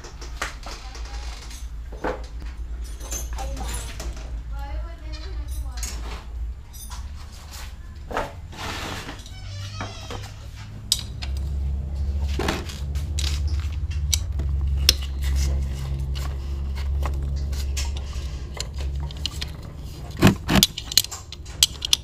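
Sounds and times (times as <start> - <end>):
low steady hum: 0.0 - 22.0
spanner clinking on bolt: 17.0 - 22.0.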